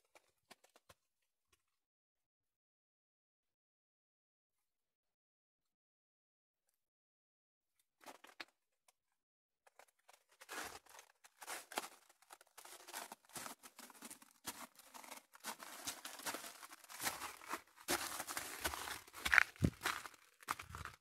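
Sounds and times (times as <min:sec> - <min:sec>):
footsteps on loose rock: 0:12.8 - 0:21.0.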